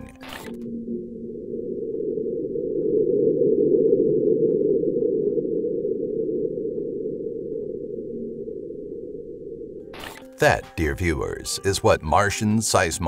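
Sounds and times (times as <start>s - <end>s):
low seismic rumble: 0.6s - 9.9s.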